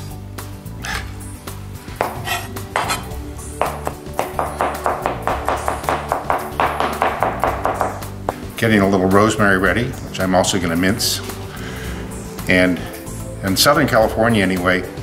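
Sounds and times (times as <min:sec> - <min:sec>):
knife chopping on plastic board: 0:02.0 - 0:08.1.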